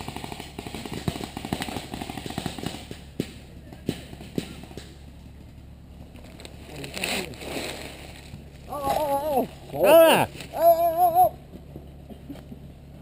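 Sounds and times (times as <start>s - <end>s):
airsoft gunfire: 0.0s - 5.0s.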